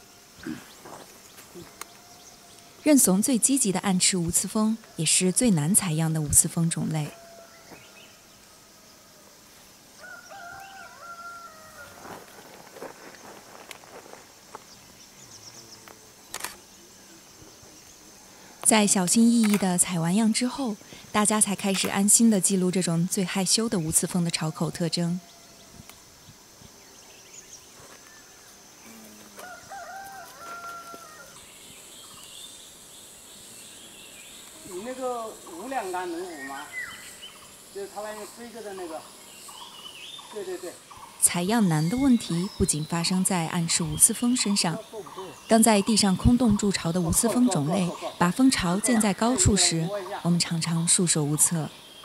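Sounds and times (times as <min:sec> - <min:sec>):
steady high hiss: 0:00.0 - 0:52.0
rooster crowing: 0:06.9 - 0:09.4, 0:10.0 - 0:12.5, 0:24.4 - 0:25.8, 0:29.2 - 0:31.4, 0:47.3 - 0:50.0.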